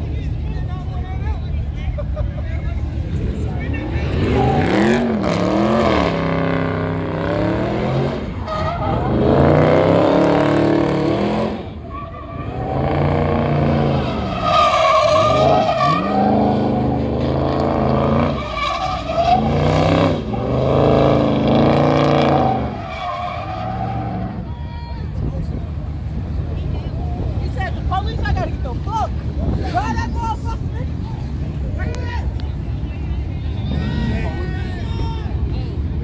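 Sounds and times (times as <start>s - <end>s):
car engine revving: 2.9s - 24.4s
tires skidding on pavement: 2.9s - 32.4s.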